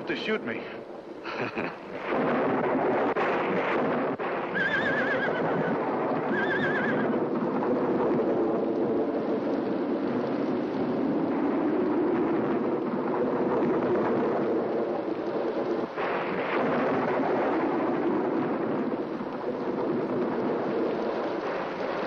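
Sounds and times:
steady rushing noise: 0.0 - 22.0
horses whinnying: 4.5 - 7.2.

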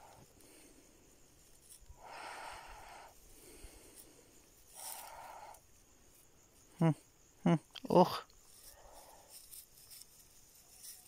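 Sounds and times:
puppies snuffling in dry grass: 0.0 - 6.3, 8.4 - 11.0.

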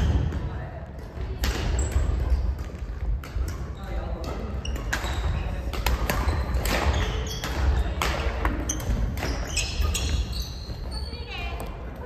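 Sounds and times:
rackets hitting shuttlecock: 0.0 - 10.4
sneaker squeaks on wooden floor: 3.6 - 11.9.

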